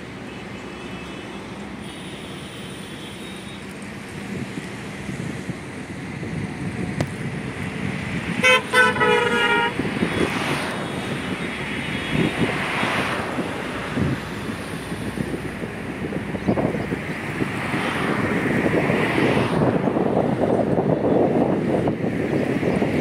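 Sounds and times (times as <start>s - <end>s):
road traffic rumble: 0.0s - 23.0s
vehicle horn honking: 0.2s - 3.6s, 8.4s - 11.2s, 11.8s - 12.5s.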